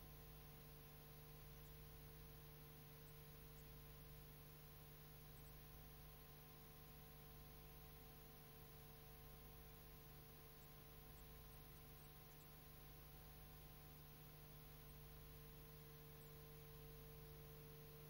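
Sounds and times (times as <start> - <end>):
faint hum with hiss: 0.0 - 18.0.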